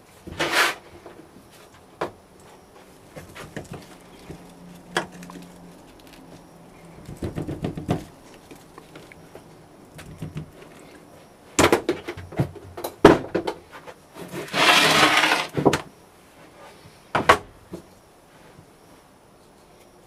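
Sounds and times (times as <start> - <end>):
rustling hiss of sand: 0.3 - 1.0.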